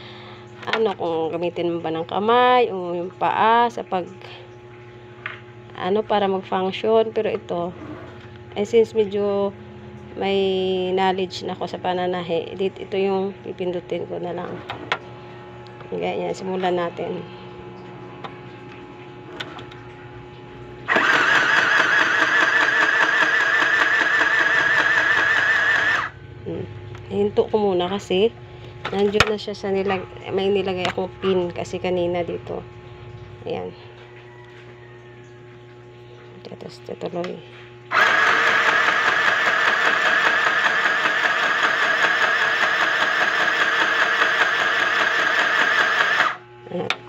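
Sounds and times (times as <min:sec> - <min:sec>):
sewing machine stitching: 0:20.9 - 0:26.1, 0:37.9 - 0:46.4.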